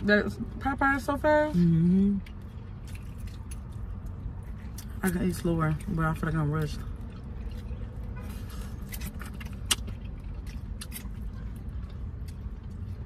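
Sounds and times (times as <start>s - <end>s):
idling car hum: 0.0s - 13.0s
crunching fried chicken: 6.6s - 13.0s.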